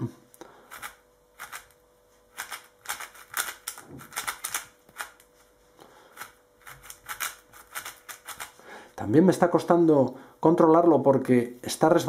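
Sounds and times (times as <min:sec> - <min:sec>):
plastic puzzle cube clicking: 0:02.4 - 0:05.2, 0:06.2 - 0:08.5.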